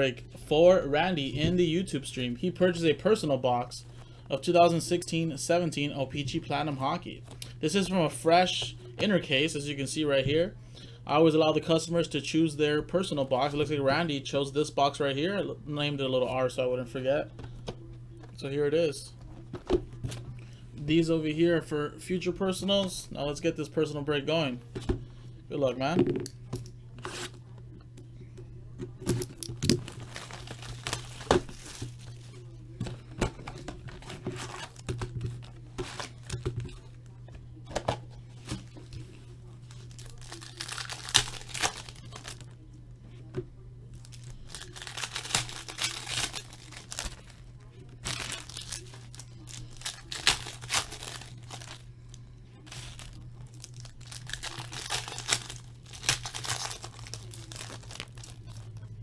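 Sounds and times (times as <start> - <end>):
foil packs crinkling and tearing: 29.1 - 32.3, 33.6 - 36.4, 39.7 - 42.5, 43.9 - 51.9, 52.6 - 58.8.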